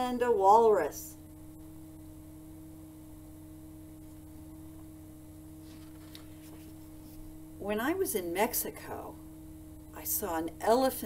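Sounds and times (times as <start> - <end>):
faint constant tone: 0.0 - 11.0
low hum: 0.0 - 11.0
soft rustles: 5.6 - 7.4.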